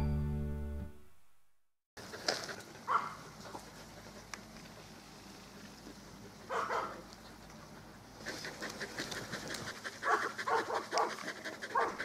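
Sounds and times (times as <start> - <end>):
dogs panting: 2.0 - 12.0.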